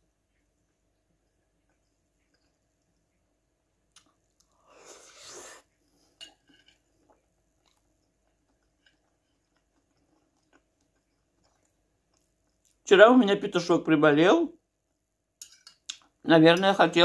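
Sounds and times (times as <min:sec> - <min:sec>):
person chewing salad: 0:03.8 - 0:12.8.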